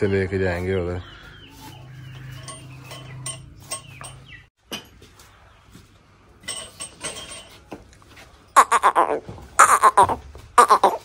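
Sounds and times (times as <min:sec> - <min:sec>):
bird chirps and clucks: 0:01.0 - 0:04.5.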